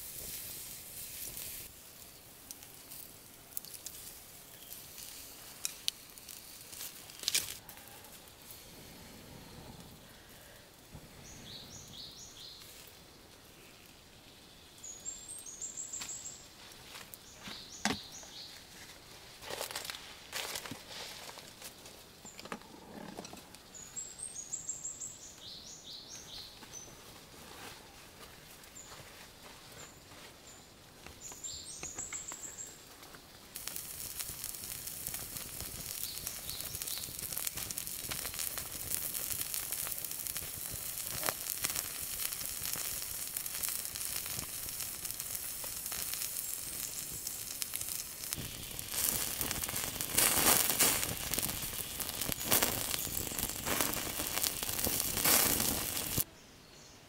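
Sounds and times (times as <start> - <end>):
food sizzling and frying: 0.0 - 8.6, 10.9 - 22.4, 31.1 - 56.3
birds chirping: 9.2 - 16.5, 17.2 - 18.6, 29.8 - 33.8, 34.4 - 38.8, 43.4 - 57.0.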